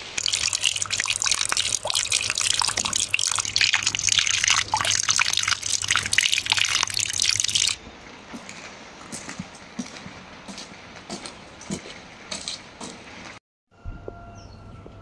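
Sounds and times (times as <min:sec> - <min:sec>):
water pouring from downspout: 0:00.0 - 0:07.8.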